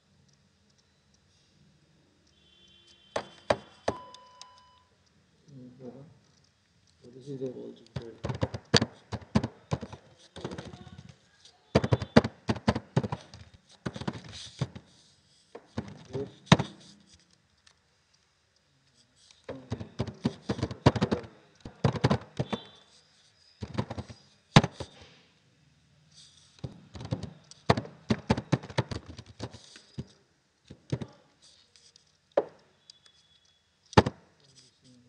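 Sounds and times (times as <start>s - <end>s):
computer keyboard typing: 7.8s - 11.1s, 11.8s - 14.8s, 19.5s - 22.8s, 23.6s - 25.0s, 26.9s - 30.2s.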